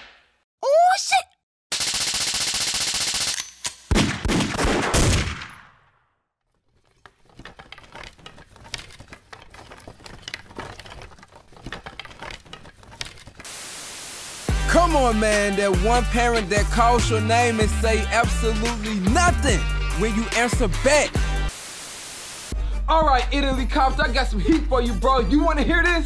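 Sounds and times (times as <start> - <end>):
rapid machine-gun-like rattle: 1.7 - 3.4.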